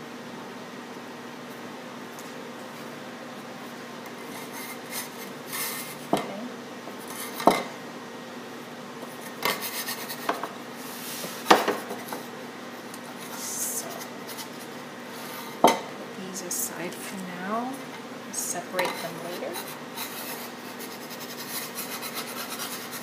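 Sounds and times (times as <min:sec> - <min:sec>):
bench scraper scraping dough: 0:09.1 - 0:12.2, 0:18.8 - 0:23.0.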